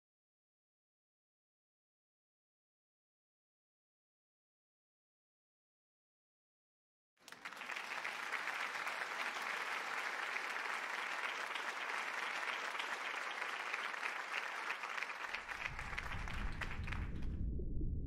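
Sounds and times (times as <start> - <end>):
audience applauding: 7.2 - 17.3
low rumble: 15.6 - 18.0.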